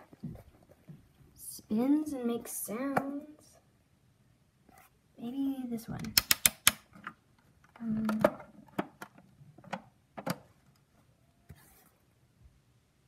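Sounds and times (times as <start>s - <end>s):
plastic toy clicks: 6.1s - 6.8s.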